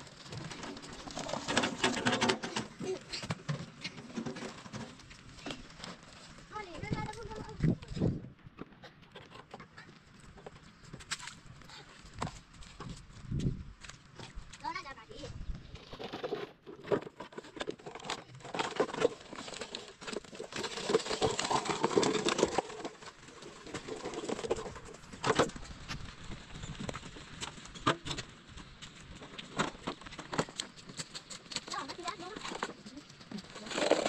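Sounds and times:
plastic toy wheelbarrow on stones: 0.0 - 8.2, 14.2 - 34.0
stones clattering: 15.8 - 25.6.

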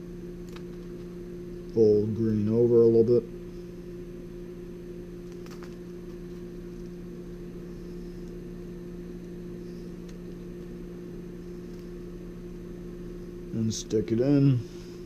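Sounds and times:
low electrical hum: 0.0 - 15.0
wire handling clicks: 0.4 - 1.8, 5.2 - 7.0, 9.2 - 10.8.

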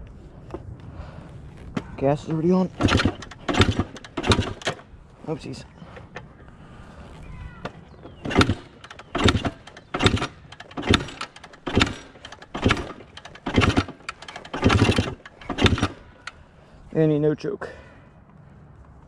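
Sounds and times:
motorcycle engine being kick-started: 2.8 - 4.9, 7.6 - 16.4.

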